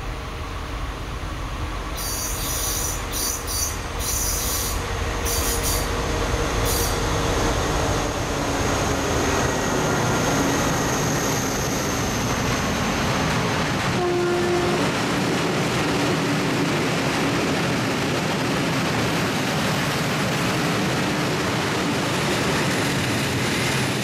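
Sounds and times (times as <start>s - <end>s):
diesel locomotive engine: 0.0s - 24.0s
train wheel squeal: 1.9s - 13.2s.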